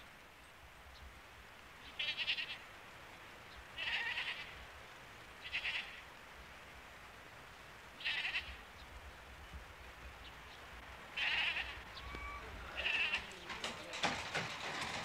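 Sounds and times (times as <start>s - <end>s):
sheep and goats bleating: 1.8s - 2.6s, 3.8s - 4.7s, 5.4s - 6.1s, 8.0s - 8.7s, 11.1s - 14.0s.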